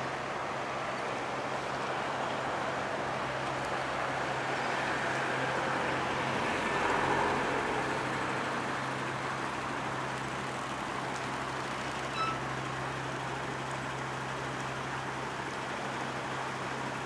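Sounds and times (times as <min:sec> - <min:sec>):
city traffic noise: 0:00.0 - 0:17.0.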